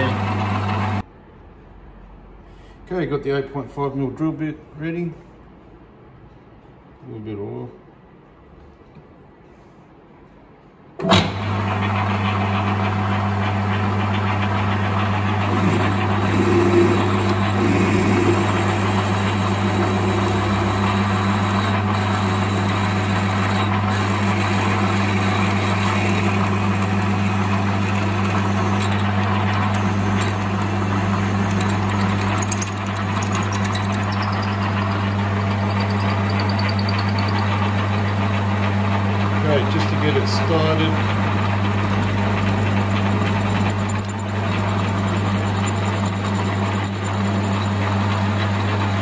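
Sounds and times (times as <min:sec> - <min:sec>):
drill boring into metal: 0:00.0 - 0:01.0, 0:15.3 - 0:38.2, 0:39.9 - 0:49.0
metal lathe humming: 0:00.0 - 0:01.0, 0:12.3 - 0:49.0.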